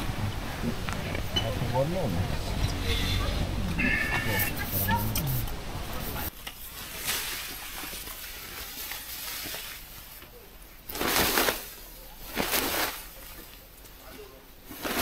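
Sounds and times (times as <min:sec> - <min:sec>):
nylon tarp rustling: 0:06.1 - 0:15.0.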